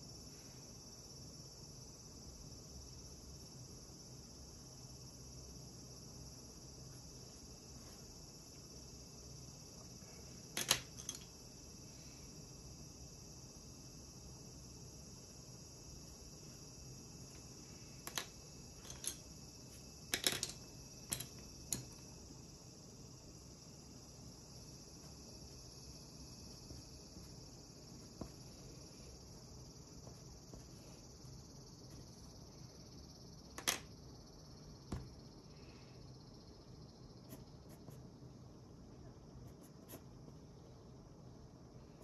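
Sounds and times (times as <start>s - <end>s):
faint steady hiss: 0.0s - 42.0s
pencils clicking on a desk: 10.5s - 11.4s, 18.0s - 19.3s, 20.1s - 22.0s, 33.5s - 33.9s.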